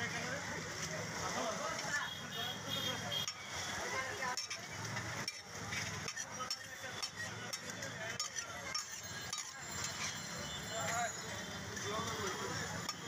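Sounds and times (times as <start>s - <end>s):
food sizzling: 3.0s - 10.6s
metal utensil scraping a pan: 4.2s - 11.0s.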